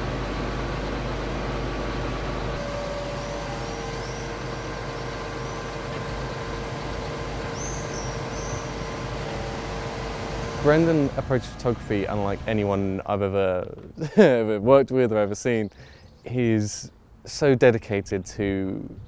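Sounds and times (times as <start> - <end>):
hydraulic crane whine: 0.0 - 14.2
engine running: 0.0 - 14.4
birds chirping: 0.3 - 13.2, 14.0 - 17.4.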